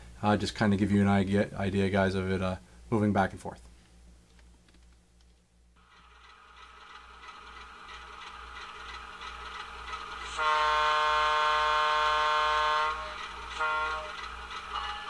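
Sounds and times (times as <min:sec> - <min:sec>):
model diesel engine sound: 0:05.8 - 0:15.0
multi-note locomotive horn: 0:10.2 - 0:15.0.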